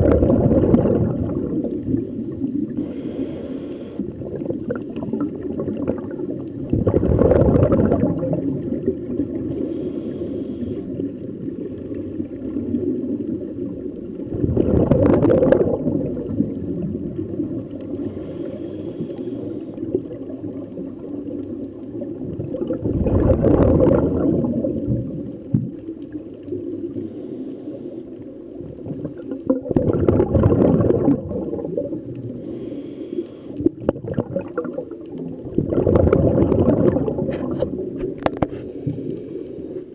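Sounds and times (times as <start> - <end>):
low underwater rumble: 0.0 - 9.8, 11.0 - 27.0, 33.6 - 39.4
diver exhaling bubbles: 0.0 - 10.9, 12.4 - 20.9, 22.1 - 25.8, 28.8 - 39.9.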